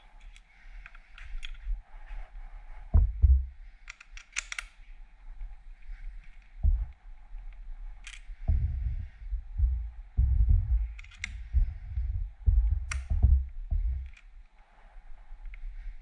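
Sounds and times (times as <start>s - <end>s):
low thuds and rumbles: 2.9s - 3.6s, 6.6s - 7.0s, 8.5s - 14.1s
sharp clicks: 3.0s - 4.8s, 8.0s - 14.6s.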